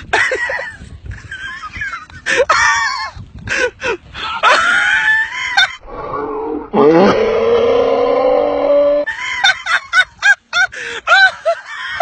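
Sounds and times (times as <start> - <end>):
man screaming and wailing: 5.9 - 9.1.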